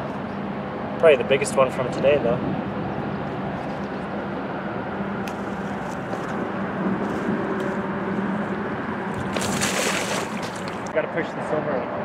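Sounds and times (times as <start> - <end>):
fish splashing into water: 9.1 - 10.9.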